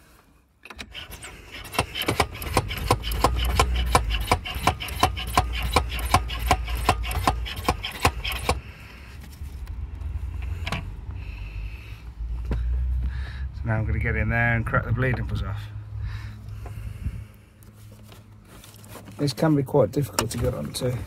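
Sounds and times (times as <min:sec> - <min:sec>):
hand pump rasping strokes: 0:00.7 - 0:08.6.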